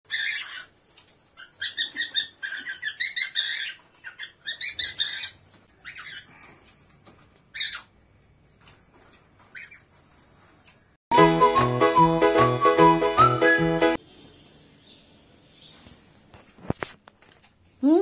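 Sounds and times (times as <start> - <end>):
cockatiels chirping: 0.1 - 0.7, 1.4 - 6.4, 7.5 - 7.9, 9.5 - 9.9.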